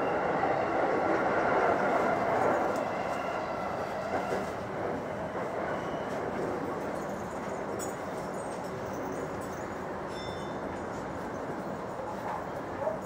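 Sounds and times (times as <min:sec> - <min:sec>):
train rolling noise from inside: 0:00.0 - 0:13.0.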